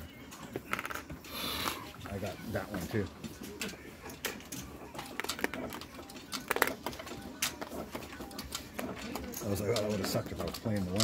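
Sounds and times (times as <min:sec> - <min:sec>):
casino chips clicking: 0:04.5 - 0:11.0.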